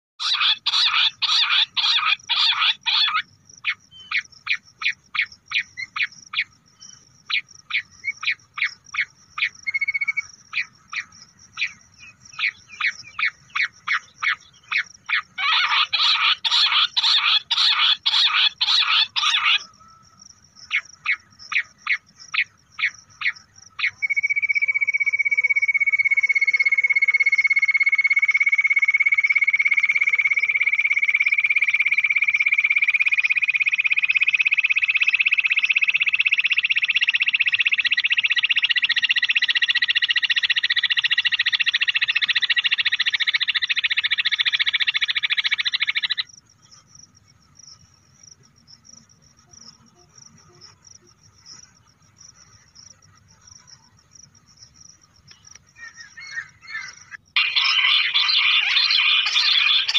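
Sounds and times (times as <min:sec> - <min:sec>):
quail calls: 0:00.2 - 0:06.5, 0:07.3 - 0:20.0, 0:35.0 - 0:46.3, 0:55.8 - 0:59.9.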